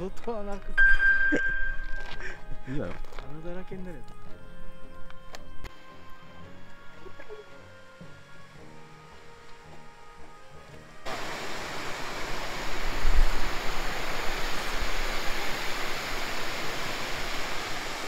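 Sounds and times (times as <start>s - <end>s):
background music: 0.0s - 11.1s
river water pouring over weir: 11.0s - 18.0s.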